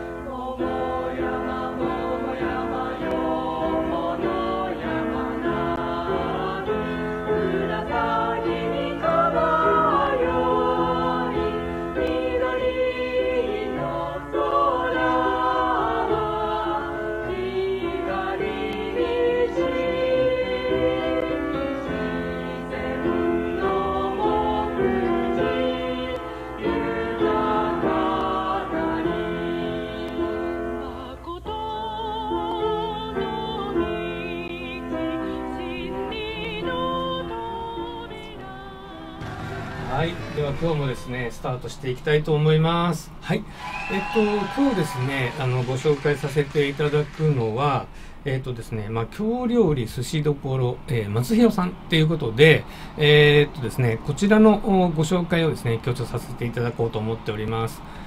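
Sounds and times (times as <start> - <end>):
choir singing with accompaniment: 0.0 - 41.9.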